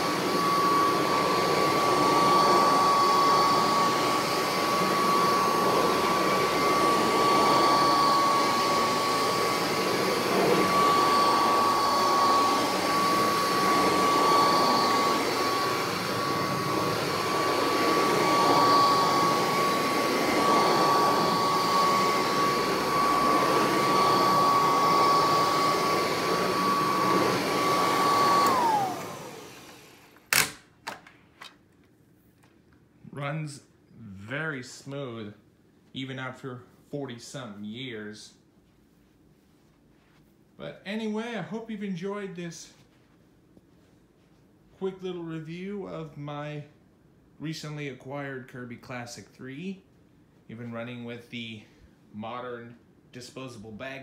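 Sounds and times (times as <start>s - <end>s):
vacuum cleaner whine: 0.0s - 30.6s.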